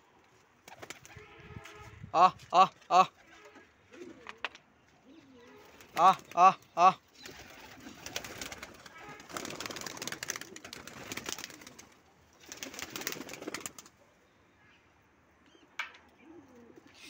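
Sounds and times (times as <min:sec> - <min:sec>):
wings fluttering: 0:00.6 - 0:01.9, 0:05.5 - 0:14.0
pigeons cooing: 0:03.1 - 0:14.0, 0:16.1 - 0:17.0.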